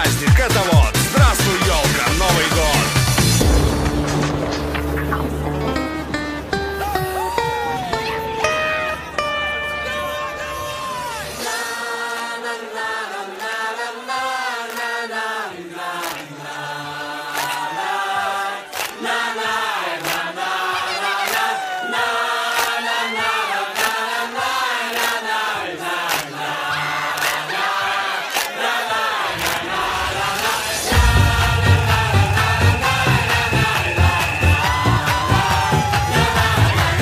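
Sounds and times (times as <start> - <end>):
music with percussive beat: 0.0 - 7.4, 30.2 - 37.0
choir singing: 8.5 - 37.0.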